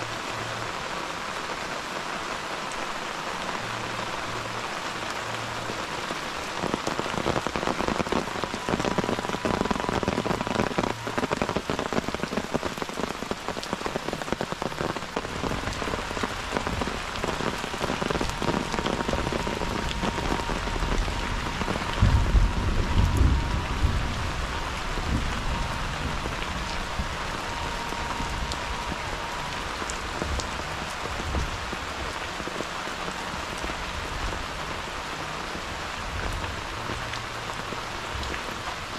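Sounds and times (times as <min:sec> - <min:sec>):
steady rain patter: 0:00.0 - 0:38.9
low rumble: 0:19.1 - 0:29.1.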